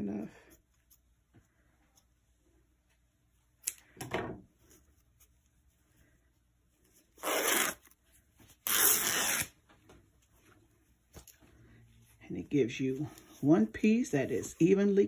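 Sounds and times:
fabric tearing: 0:07.2 - 0:08.0, 0:08.6 - 0:09.6.

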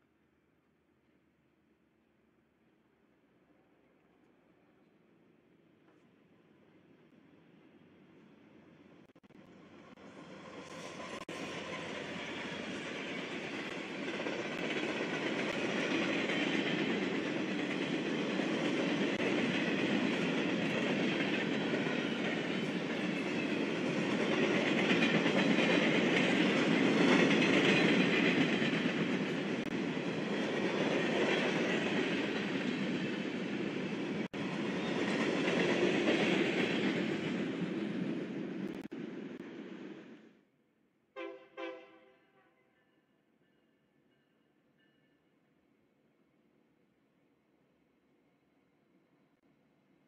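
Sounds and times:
train wheels clattering on rails: 0:10.6 - 0:38.9.

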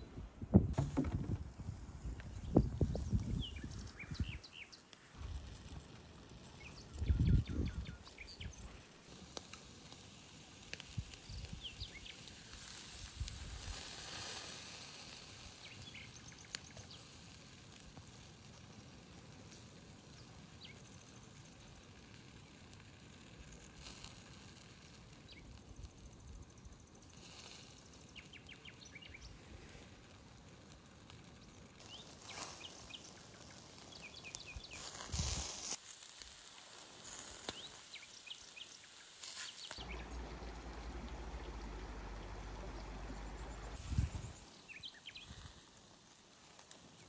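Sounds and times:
soft hiss: 0:00.0 - 0:47.0
low thump: 0:00.5 - 0:01.7
bird chirps: 0:06.5 - 0:08.8, 0:37.5 - 0:45.4.

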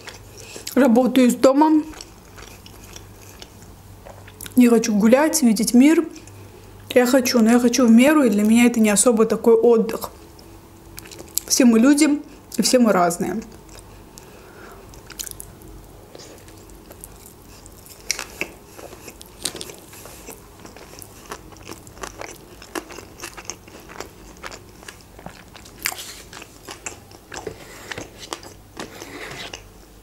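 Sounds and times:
wet chewing and crunches: 0:01.9 - 0:04.6, 0:10.3 - 0:11.5, 0:14.9 - 0:15.6, 0:16.2 - 0:29.7.

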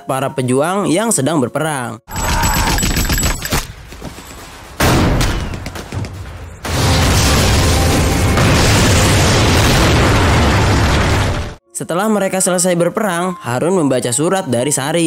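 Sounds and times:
gunfire and explosions: 0:02.1 - 0:11.6
heavy blast: 0:04.5 - 0:11.6.

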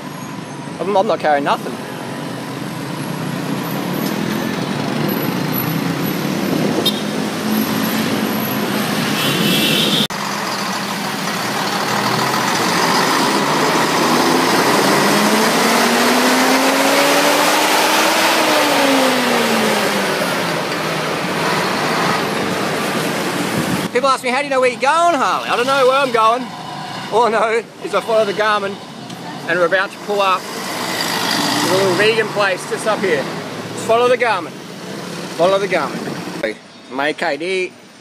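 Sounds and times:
city road traffic: 0:00.0 - 0:38.0
nearby engine rising in pitch: 0:11.3 - 0:23.6.

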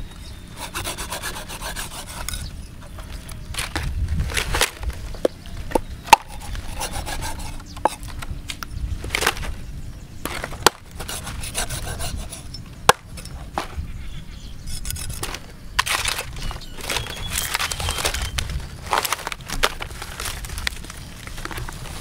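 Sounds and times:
cleaver scraping fish: 0:00.5 - 0:05.0, 0:06.0 - 0:08.2, 0:10.3 - 0:13.4, 0:14.6 - 0:22.0.

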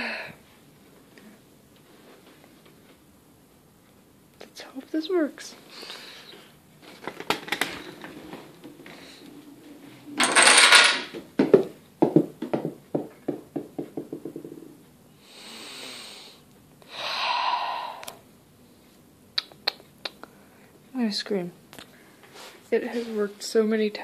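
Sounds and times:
soft hissing: 0:15.2 - 0:18.8.

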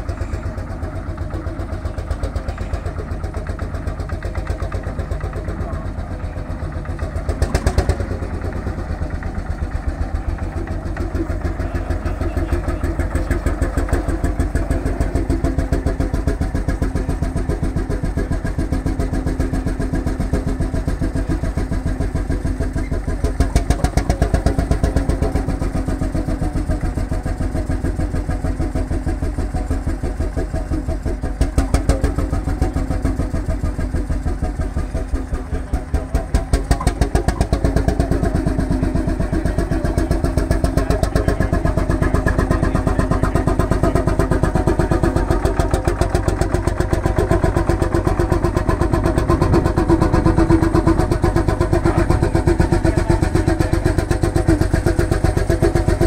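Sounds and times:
tractor engine thumping: 0:00.0 - 0:56.0.

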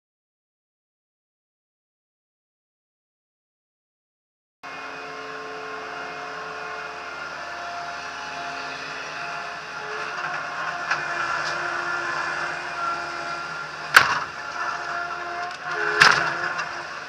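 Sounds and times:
loader engine running: 0:04.6 - 0:17.0.

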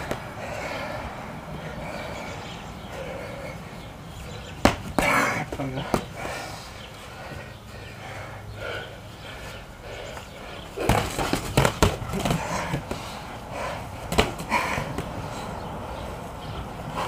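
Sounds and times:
boxing gloves punching: 0:00.0 - 0:00.3, 0:04.2 - 0:06.5, 0:10.8 - 0:15.2
heavy breathing and grunts: 0:00.0 - 0:17.0.

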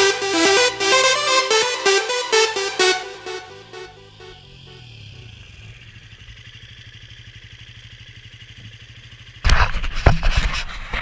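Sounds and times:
dirt bike engine idling: 0:03.9 - 0:10.1.

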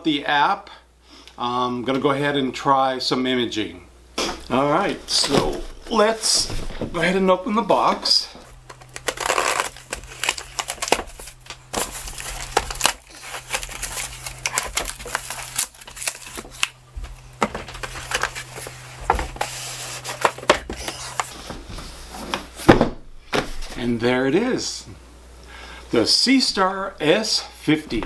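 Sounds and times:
cardboard scraping and ripping: 0:08.4 - 0:16.8, 0:17.4 - 0:21.5
knife slicing packing tape: 0:08.9 - 0:11.0.

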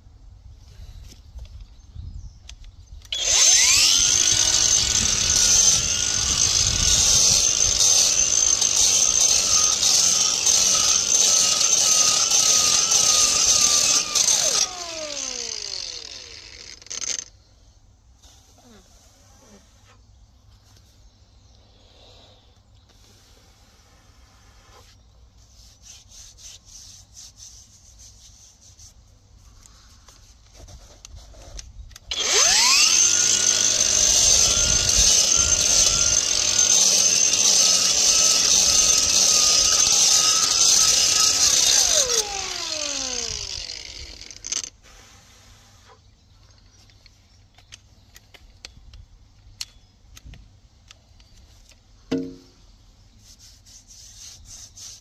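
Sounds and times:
angle grinder grinding concrete: 0:03.1 - 0:17.3, 0:32.1 - 0:44.8
knock: 0:52.1 - 0:52.5.

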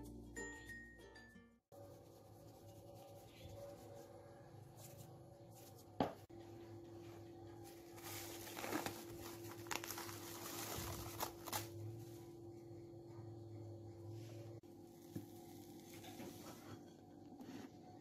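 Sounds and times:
cling film crinkling: 0:07.9 - 0:11.8.

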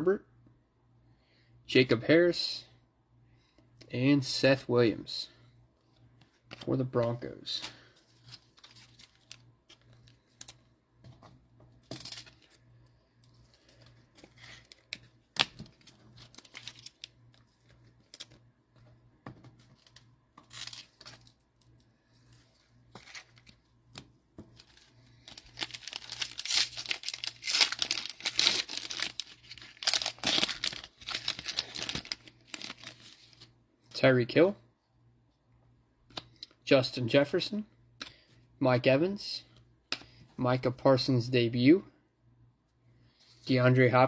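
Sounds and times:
foil wrapper crinkling and tearing: 0:14.5 - 0:17.2, 0:24.6 - 0:33.4
rustles and taps of handling cards: 0:17.4 - 0:20.5.

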